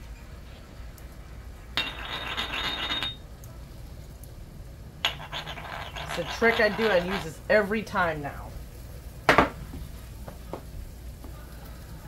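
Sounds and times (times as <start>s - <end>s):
spice grinder grinding: 5.0s - 7.3s.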